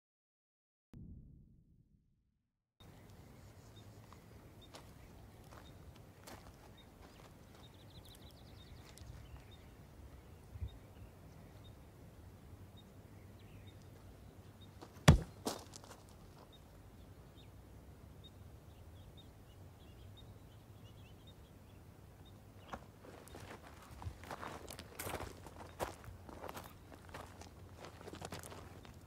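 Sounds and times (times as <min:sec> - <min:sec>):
faint outdoor ambience: 0:02.8 - 0:29.0
hard kick smack: 0:15.0 - 0:15.4.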